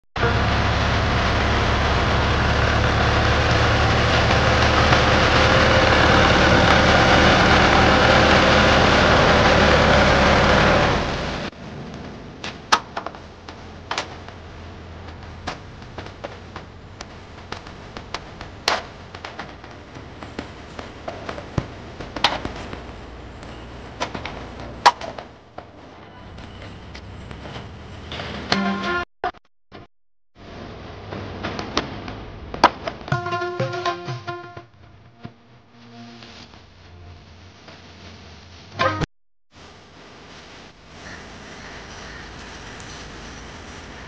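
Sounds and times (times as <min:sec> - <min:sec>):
tractor diesel engine running: 0:00.2 - 0:12.4.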